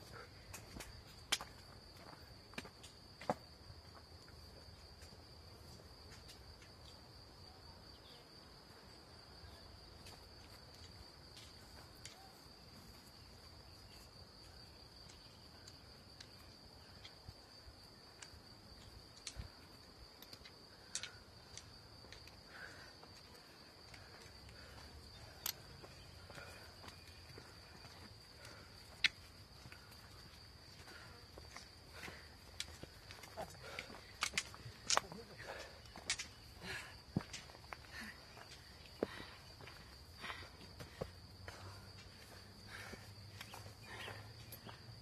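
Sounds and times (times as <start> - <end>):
footsteps on trail: 0.0 - 7.1, 9.8 - 45.0
crickets trilling: 0.0 - 45.0
trekking poles clicking: 32.5 - 37.6.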